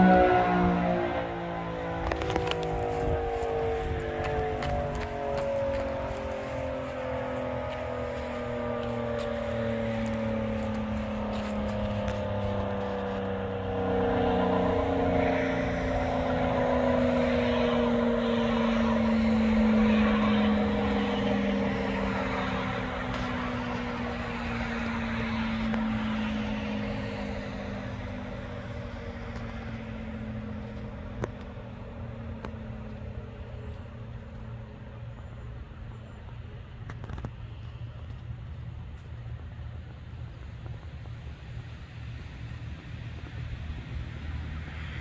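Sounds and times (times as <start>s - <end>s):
tornado siren winding down: 0.0s - 35.1s.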